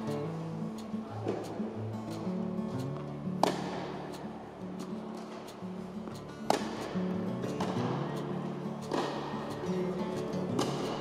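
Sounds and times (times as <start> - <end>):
guitar music: 0.0 - 11.0
tennis racket hitting ball: 0.8 - 1.6, 3.4 - 11.0.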